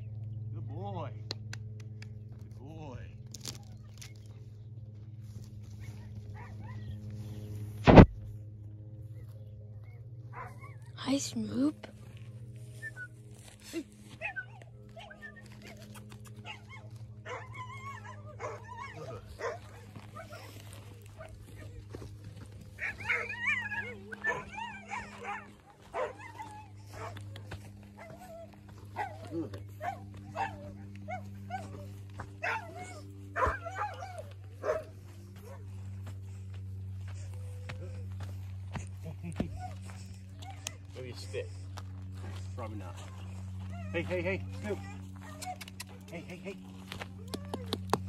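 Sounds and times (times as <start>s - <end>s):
low hum: 0.0s - 48.0s
puppy whimpering: 14.2s - 21.9s, 22.8s - 27.3s, 39.5s - 40.9s, 43.0s - 46.1s, 47.1s - 48.0s.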